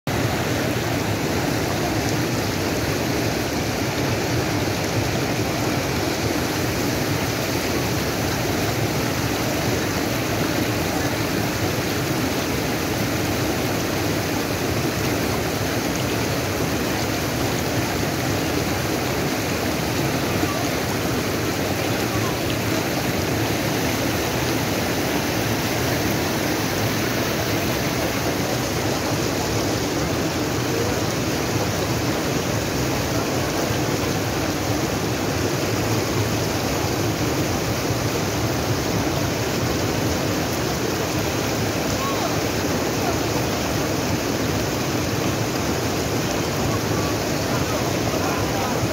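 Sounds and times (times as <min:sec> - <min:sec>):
stream rushing over rocks: 0:00.1 - 0:48.9.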